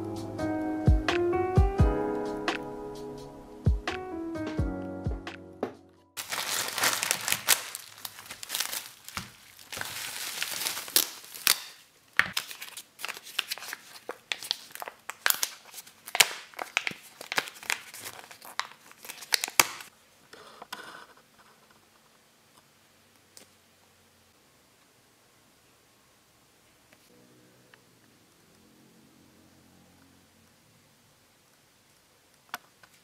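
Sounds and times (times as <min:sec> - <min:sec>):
cards being handled: 0:06.2 - 0:19.9
plastic mailer bag crinkling: 0:06.2 - 0:19.9.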